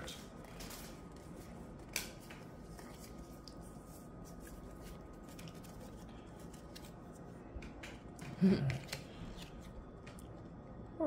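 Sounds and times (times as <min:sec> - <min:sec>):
low room noise: 0:00.0 - 0:11.0
cards ticking and rustling: 0:04.3 - 0:08.0.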